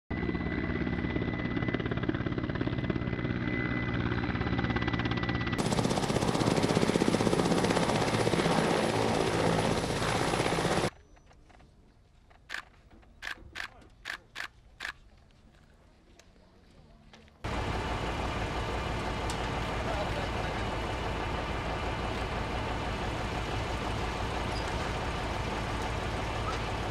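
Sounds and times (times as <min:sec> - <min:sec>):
helicopter engines and rotor: 0:00.1 - 0:10.9, 0:17.4 - 0:26.9.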